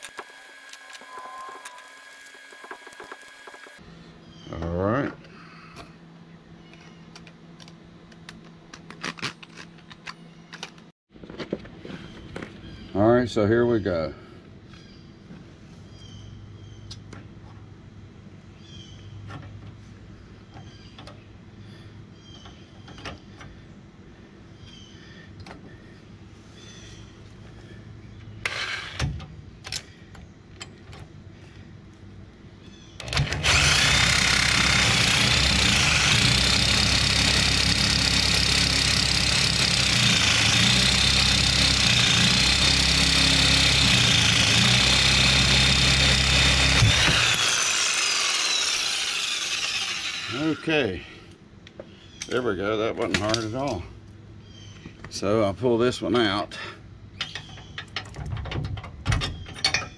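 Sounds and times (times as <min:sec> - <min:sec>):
reciprocating saw cutting metal: 0:00.0 - 0:03.8, 0:33.0 - 0:50.7.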